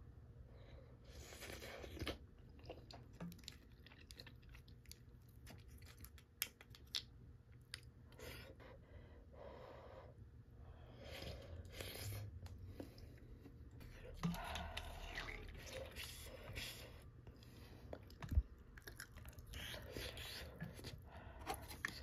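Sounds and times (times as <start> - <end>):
soft chewing: 1.0 - 8.8, 10.8 - 22.0.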